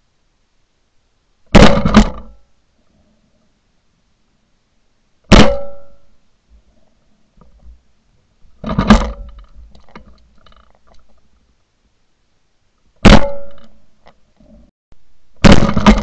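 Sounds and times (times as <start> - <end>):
shotgun blasts: 1.5 - 2.4, 5.3 - 6.0, 13.0 - 13.7, 15.4 - 16.0.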